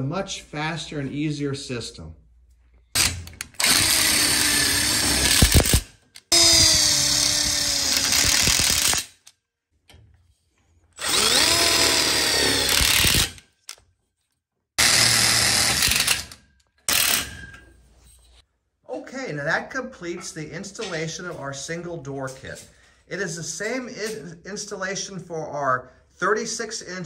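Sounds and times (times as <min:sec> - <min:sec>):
impact driver rapid hammering: 0:03.0 - 0:09.1, 0:11.0 - 0:13.4
impact driver motor whine: 0:03.6 - 0:09.0, 0:11.0 - 0:13.4.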